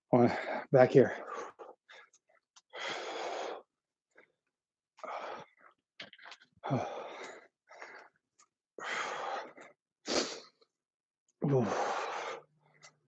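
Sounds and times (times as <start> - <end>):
man breathing heavily: 0.2 - 4.3, 5.0 - 5.7, 6.6 - 8.2, 8.8 - 10.6, 11.4 - 12.9
man grunting: 11.4 - 11.9.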